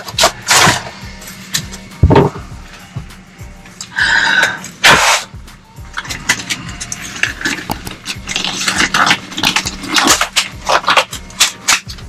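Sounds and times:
rubber gloves snapping and stretching: 0:05.9 - 0:12.0.

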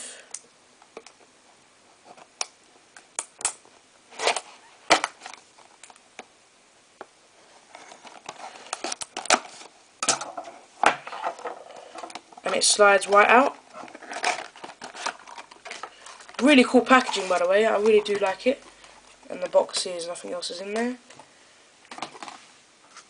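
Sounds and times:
plastic box clicks and scrapes: 0:07.8 - 0:18.4
plastic crinkling: 0:11.0 - 0:19.8.

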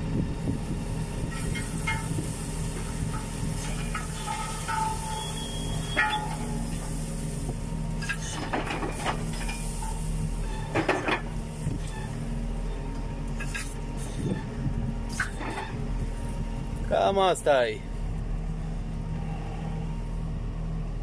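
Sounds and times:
tractor engine running: 0:00.0 - 0:21.0
clanks and rattles: 0:01.2 - 0:07.0, 0:08.0 - 0:14.5, 0:15.1 - 0:15.8.

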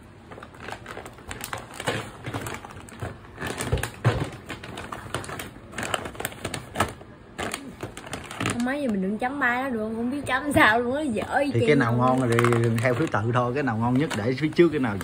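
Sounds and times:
plastic bags crinkling: 0:00.0 - 0:09.2, 0:11.6 - 0:15.0
snacks shaking in bags: 0:12.0 - 0:15.0.

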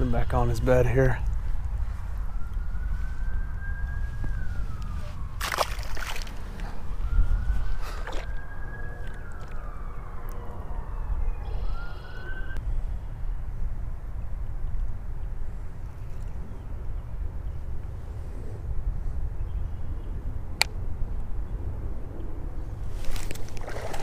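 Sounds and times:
faint siren wailing: 0:00.0 - 0:12.6
wind rumble on microphone: 0:00.0 - 0:24.0
sharp splash: 0:05.4 - 0:06.5, 0:23.0 - 0:24.0.

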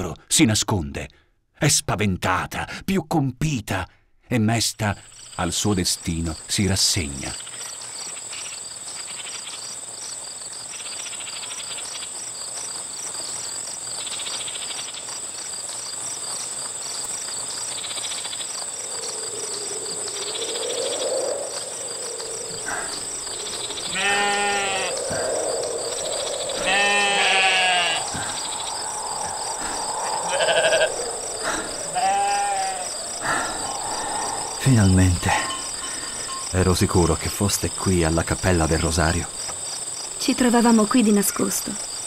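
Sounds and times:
crickets chirping: 0:04.4 - 0:42.0
livestock bleating: 0:23.8 - 0:25.0, 0:26.6 - 0:28.1, 0:30.3 - 0:32.9.

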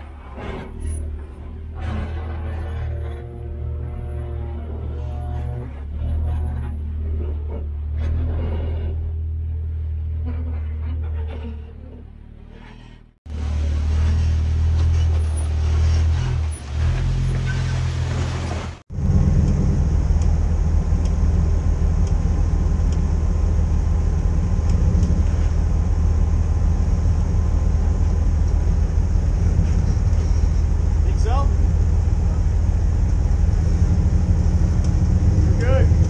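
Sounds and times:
off-road engine running low revs: 0:00.0 - 0:12.5, 0:13.2 - 0:36.0.

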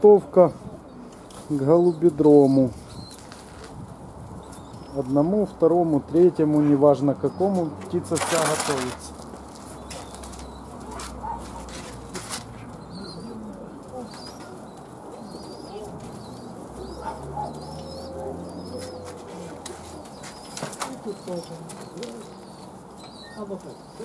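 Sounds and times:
pigeons cooing: 0:09.6 - 0:24.0.

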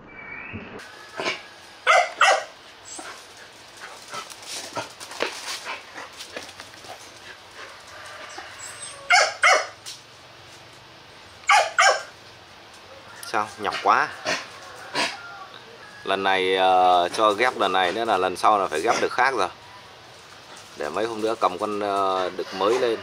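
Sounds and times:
dog barking: 0:01.2 - 0:02.6, 0:09.1 - 0:09.8, 0:11.5 - 0:12.1.

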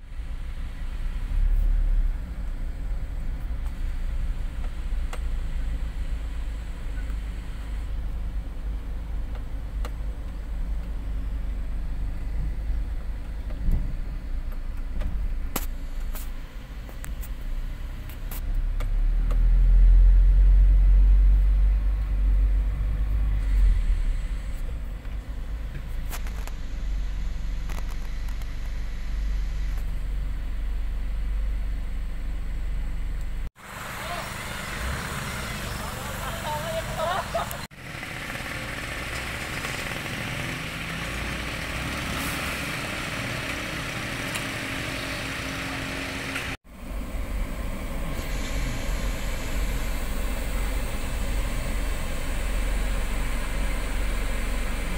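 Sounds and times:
slow motor vehicle rumble: 0:00.0 - 0:54.9.

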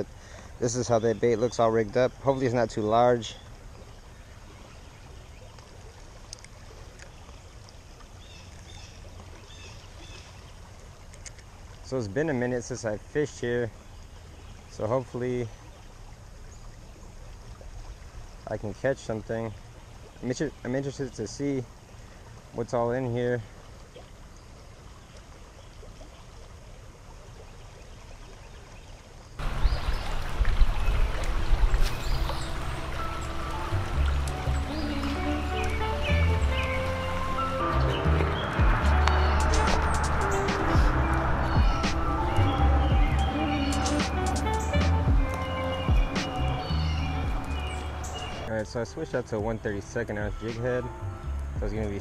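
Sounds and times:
creek water rushing: 0:00.0 - 0:52.0
faint ticks: 0:05.5 - 0:09.3, 0:11.0 - 0:11.5
background music with deep bass: 0:31.1 - 0:52.0.

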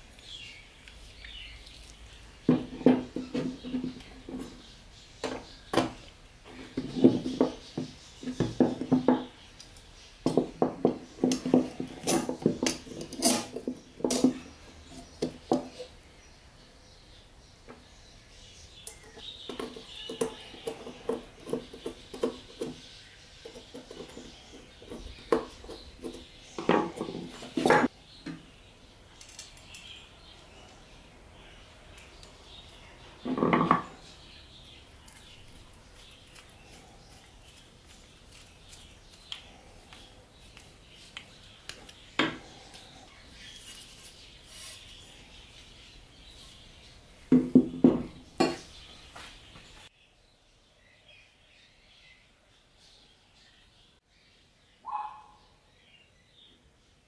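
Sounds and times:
metal parts clinking and knocking: 0:29.2 - 0:30.0.

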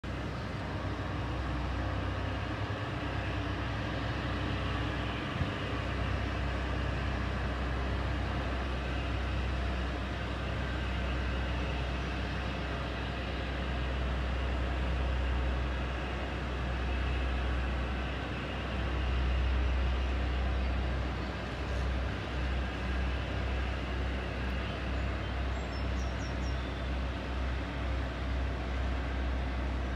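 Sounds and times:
diesel engines low rumble: 0:00.0 - 0:29.9.

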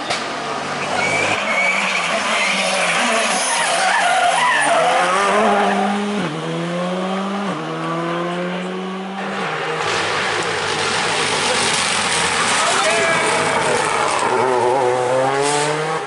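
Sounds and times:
tyres squealing: 0:00.8 - 0:05.9
rally car engine accelerating: 0:04.7 - 0:16.0.

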